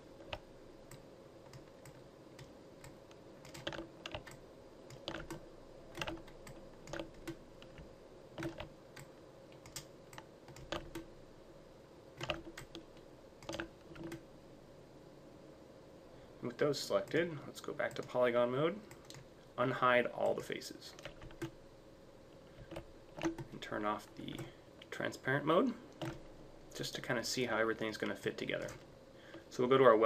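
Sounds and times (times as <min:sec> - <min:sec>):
faint steady hum: 0:00.0 - 0:30.0
mouse and keyboard clicks: 0:00.2 - 0:11.1, 0:13.4 - 0:14.2.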